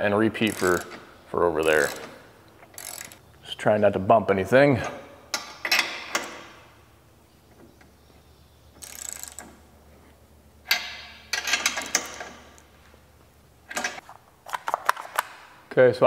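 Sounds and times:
ratchet wrench clicking: 0.4s - 1.0s, 1.6s - 3.2s, 8.8s - 9.6s.

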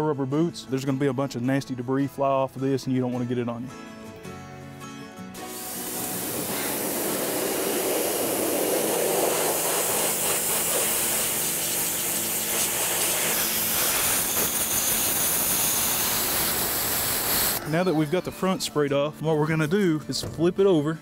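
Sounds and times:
pressure washer spraying: 5.4s - 17.6s.

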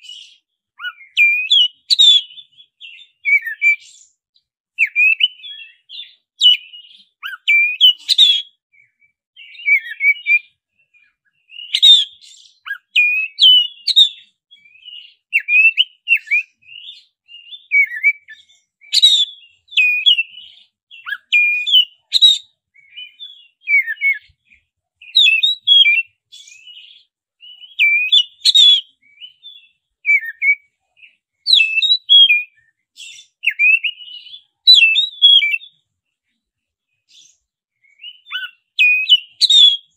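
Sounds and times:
bird whistled song: 0.0s - 35.9s, 37.0s - 39.9s.

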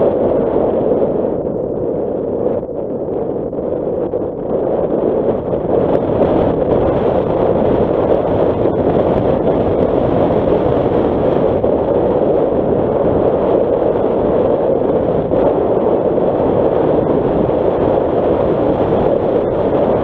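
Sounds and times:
wind on microphone: 0.0s - 20.0s.

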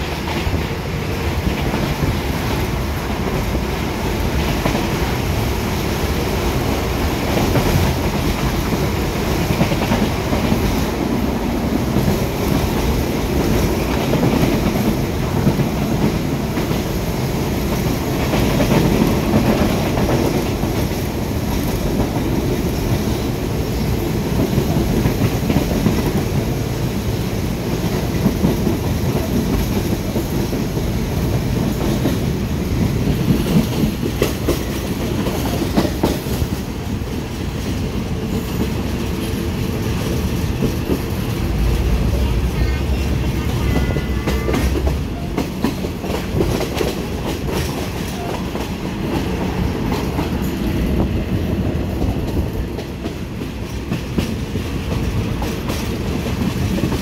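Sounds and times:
train wheels rumbling on rails: 0.0s - 57.0s
rail-joint clicks: 27.6s - 57.0s.

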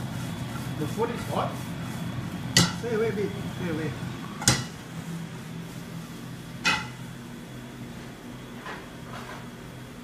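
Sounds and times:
steady low hum: 0.0s - 10.0s
frying pan clinking against metal: 2.6s - 2.8s, 6.6s - 7.0s.

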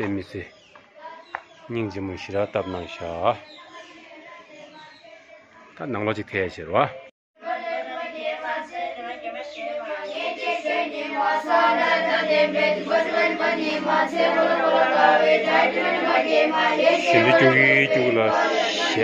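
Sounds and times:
children chanting in unison: 0.9s - 5.7s, 7.4s - 19.0s.

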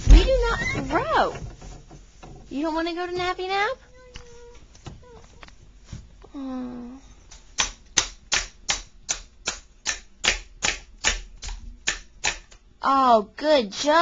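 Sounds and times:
person humming: 6.3s - 7.2s.

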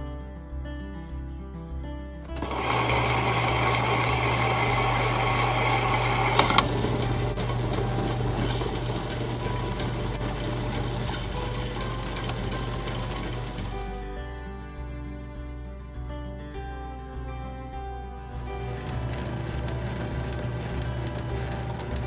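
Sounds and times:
rough grinding rush: 2.3s - 14.0s
wet grinder motor hum: 2.3s - 14.1s, 18.3s - 22.0s.

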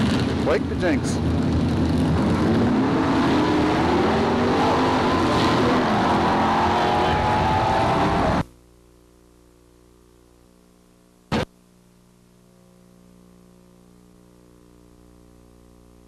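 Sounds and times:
low electrical hum: 8.4s - 16.0s.

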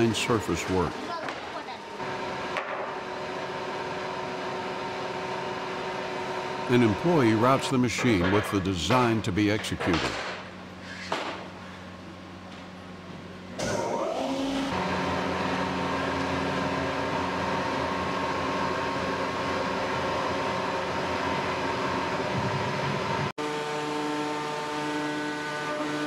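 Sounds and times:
wood router whining: 13.6s - 26.0s.

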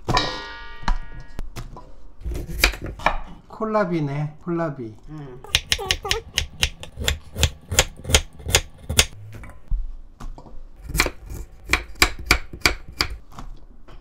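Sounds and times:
knife cutting vegetables: 5.5s - 9.2s, 10.8s - 13.2s.

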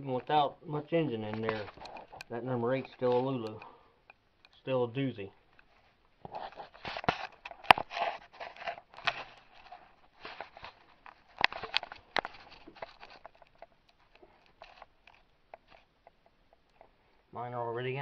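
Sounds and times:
handling rustling: 1.0s - 17.3s
sharp clicks and knocks of tools: 1.3s - 4.6s.

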